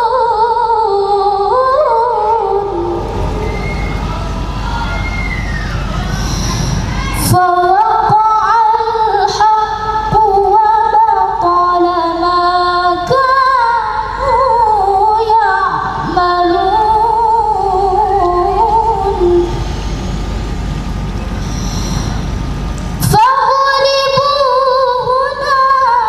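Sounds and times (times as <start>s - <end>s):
woman reciting melodically: 0.0s - 3.1s, 6.2s - 19.7s, 23.0s - 26.0s.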